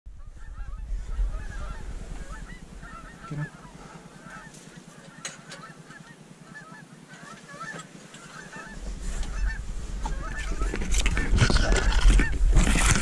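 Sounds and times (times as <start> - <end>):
low rumble: 0.1 - 4.4
geese honking: 0.2 - 13.0.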